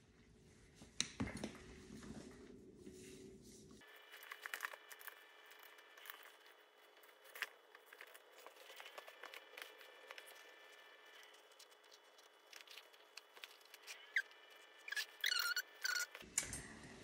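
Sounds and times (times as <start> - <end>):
faint steady hum: 0.0 - 17.0.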